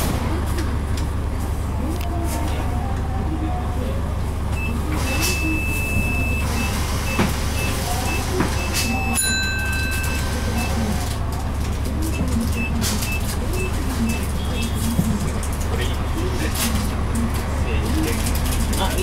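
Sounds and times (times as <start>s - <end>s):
bus diesel engine idling: 0.0s - 19.0s
high electronic beeps: 4.6s - 9.2s.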